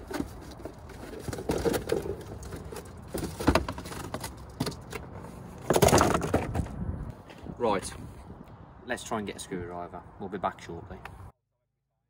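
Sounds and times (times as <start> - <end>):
cardboard box knocks and rustles: 0.1 - 4.7.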